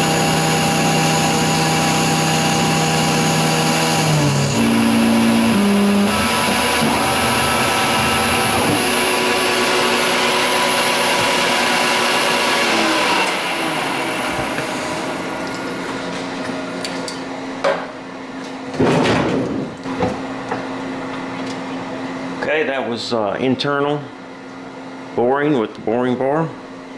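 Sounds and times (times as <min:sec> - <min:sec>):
lathe machining metal: 0:00.0 - 0:16.1
spindle winding down hum: 0:00.0 - 0:16.9.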